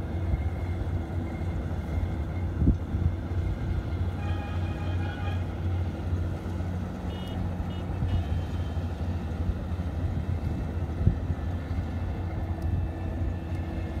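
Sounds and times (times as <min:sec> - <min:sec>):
harvester engine humming: 0:00.0 - 0:14.0.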